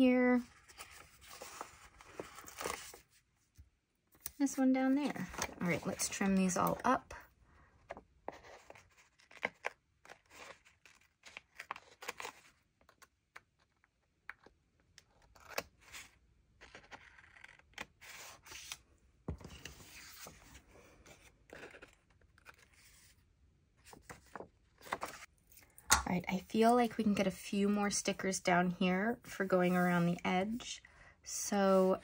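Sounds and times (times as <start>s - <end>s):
paper scraping and handling: 0.5s - 3.2s, 23.8s - 25.3s.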